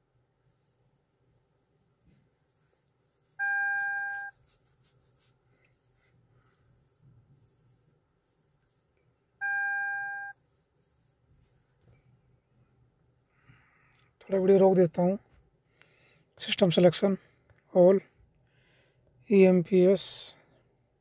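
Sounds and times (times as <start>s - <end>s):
electronic chime beep: 3.4s - 4.3s, 9.4s - 10.3s.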